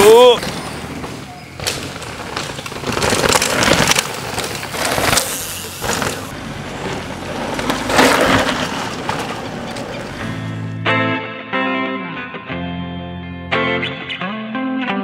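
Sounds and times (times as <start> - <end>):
bikes rattling: 0.0 - 10.7
tyres crunching over gravel: 0.2 - 10.3.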